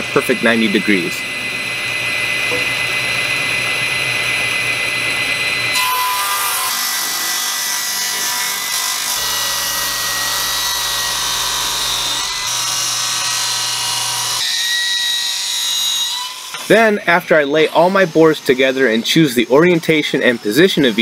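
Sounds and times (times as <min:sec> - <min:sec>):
table saw cutting wood: 0:00.0 - 0:21.0.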